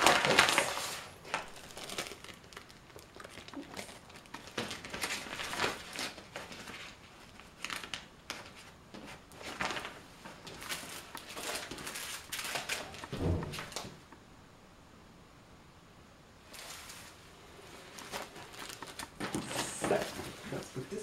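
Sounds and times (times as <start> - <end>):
plastic bag crinkling: 0.0 - 8.6, 17.9 - 21.0.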